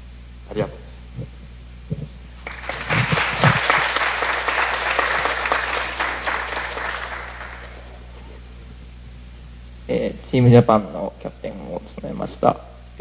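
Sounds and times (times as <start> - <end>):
audience applauding: 2.4 - 8.4.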